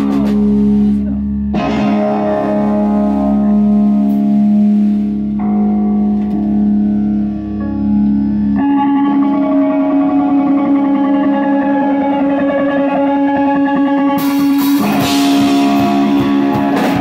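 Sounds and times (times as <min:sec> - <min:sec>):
distorted electric guitar chords: 0:00.0 - 0:17.0
electric bass: 0:00.0 - 0:17.0.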